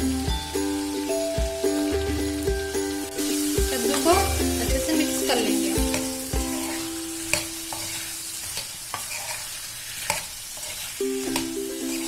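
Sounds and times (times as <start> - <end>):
light sizzle: 0.0 - 12.0
metal spoon scraping pan: 3.4 - 12.0.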